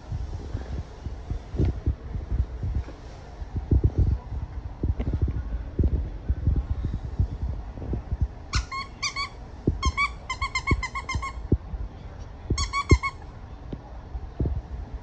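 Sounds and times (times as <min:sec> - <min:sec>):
dog squeaky toy squeaks: 0:08.5 - 0:11.4, 0:12.6 - 0:13.2.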